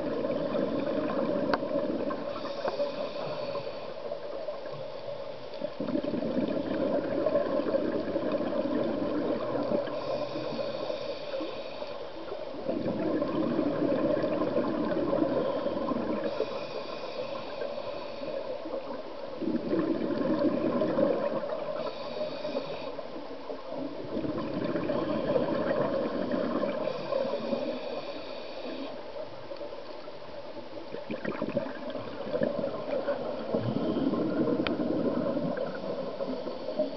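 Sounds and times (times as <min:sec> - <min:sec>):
exhaled bubbles gurgling: 0:00.0 - 0:04.9, 0:05.5 - 0:11.6, 0:12.3 - 0:30.0, 0:30.6 - 0:36.9
diver breathing through regulator: 0:02.2 - 0:04.1, 0:09.8 - 0:12.1, 0:15.4 - 0:18.8, 0:21.7 - 0:23.2, 0:24.8 - 0:29.0.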